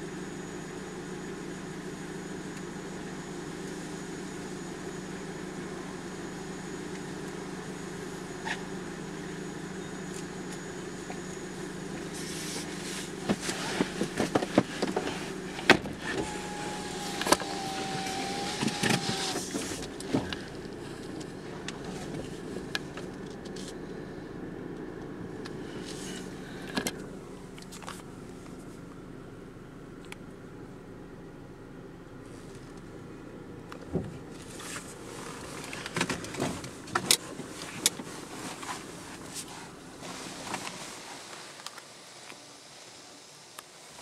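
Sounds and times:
wavering whine: 0.0s - 13.8s, 15.0s - 24.3s
car wash machine hum: 0.0s - 44.0s.

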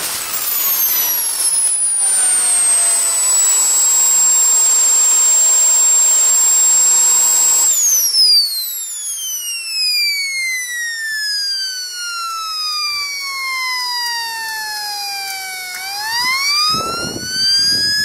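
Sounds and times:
jet exhaust rushing: 0.0s - 8.9s, 13.9s - 18.0s
jet turbine whine: 0.0s - 18.0s.

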